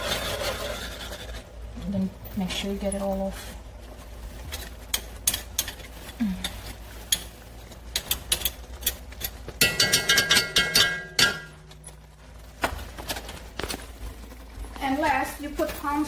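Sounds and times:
spoons clinking on metal pot: 4.8s - 12.0s.

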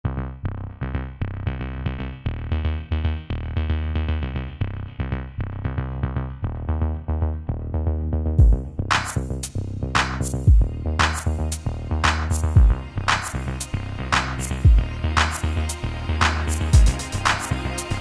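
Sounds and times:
synth bass notes: 0.0s - 18.0s
drum machine beat: 8.4s - 18.0s.

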